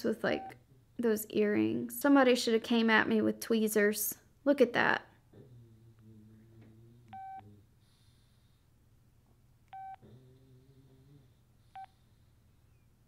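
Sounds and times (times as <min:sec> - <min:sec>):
faint low hum: 0:00.0 - 0:13.0
phone key beeps: 0:09.7 - 0:10.0.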